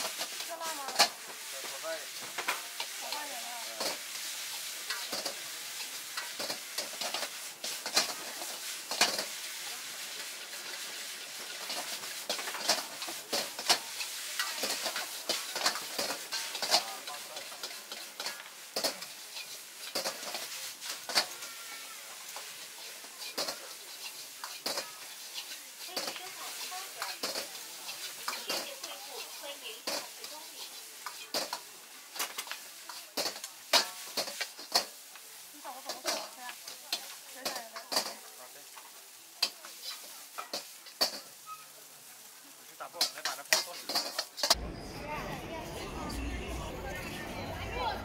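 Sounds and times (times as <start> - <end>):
chopsticks scraping and knocking wok: 0.0 - 44.8
noodles sizzling in a wok: 0.0 - 44.8.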